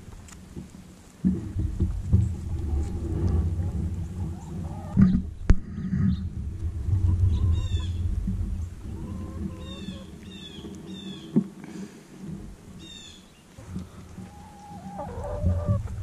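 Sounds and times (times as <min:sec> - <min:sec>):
low microphone rumble: 0:00.0 - 0:16.0
hens calling softly: 0:04.1 - 0:05.1, 0:08.8 - 0:11.4, 0:12.8 - 0:16.0.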